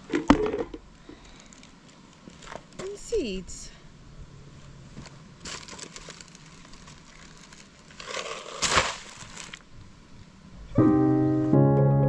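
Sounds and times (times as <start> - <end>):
rustling crunching handling noise: 0.0 - 3.2, 4.6 - 9.8.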